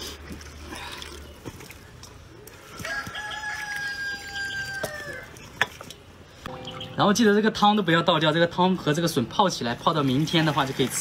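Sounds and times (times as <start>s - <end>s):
rooster crowing: 2.8s - 5.3s.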